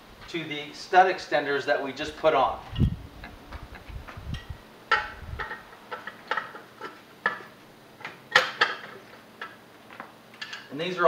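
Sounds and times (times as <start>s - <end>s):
metal nuts clinking: 10.4s - 10.8s.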